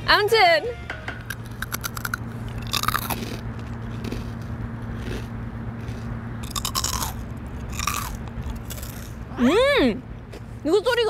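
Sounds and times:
chewing crackles: 1.2s - 9.2s
crunchy bites into snack: 1.2s - 9.2s.

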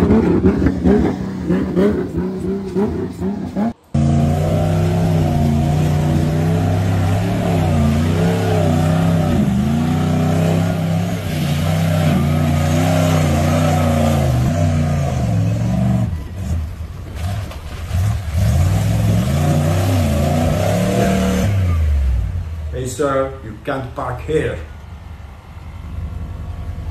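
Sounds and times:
pickup engine revving: 0.0s - 22.8s
tyres spinning in mud: 4.0s - 21.4s.

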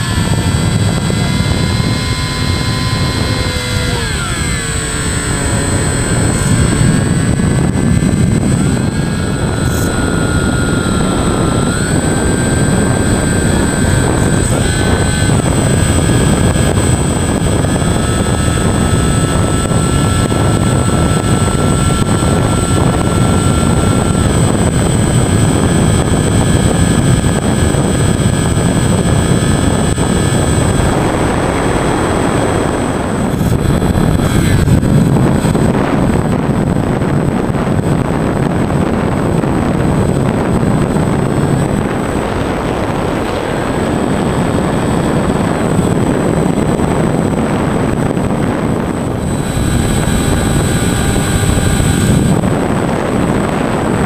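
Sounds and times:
electric motor and propeller whine: 0.0s - 54.0s
wind rush on microphone: 0.0s - 54.0s.

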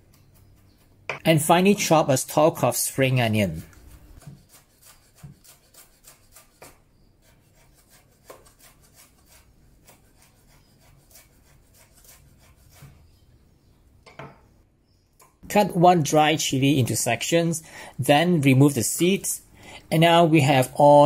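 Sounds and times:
knife chopping on wooden board: 4.1s - 6.8s, 8.2s - 8.7s.

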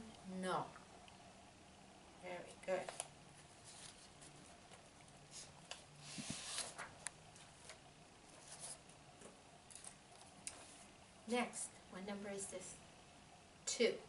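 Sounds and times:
paper page rustling: 2.8s - 10.9s.

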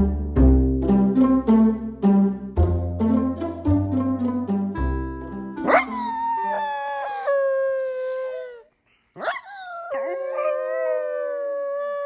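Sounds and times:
dog howling: 5.7s - 12.0s.

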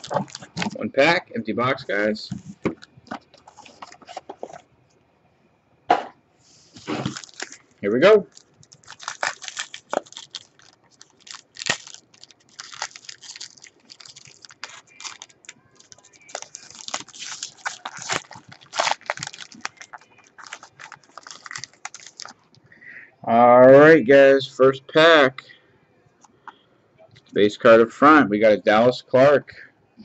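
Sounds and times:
foil wrapper crinkling and tearing: 0.0s - 0.8s, 6.8s - 22.6s.

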